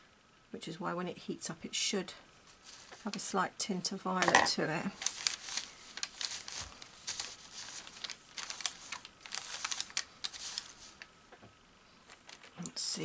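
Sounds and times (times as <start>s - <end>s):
fibres rustling under hand: 2.4s - 3.4s, 4.2s - 11.3s, 12.0s - 13.0s.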